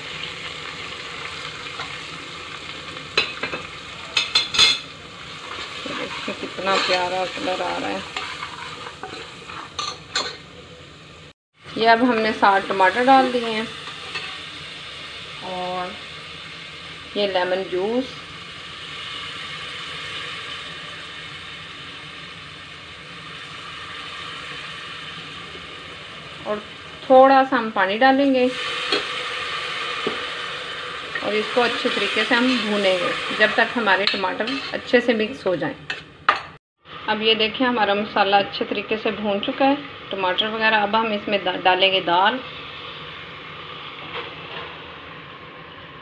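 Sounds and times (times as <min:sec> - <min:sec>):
onions sizzling in oil: 0:00.0 - 0:46.0
metal ladle scraping pot: 0:04.2 - 0:10.4, 0:33.2 - 0:34.9.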